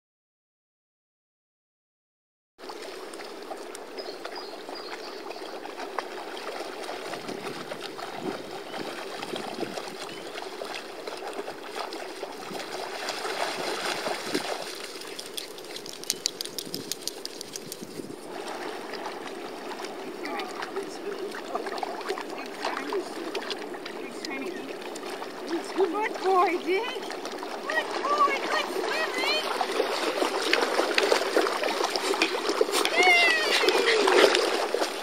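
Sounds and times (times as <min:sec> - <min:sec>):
dogs wading through shallow water: 0:02.6 - 0:35.0
quick sharp ticks: 0:14.9 - 0:18.0.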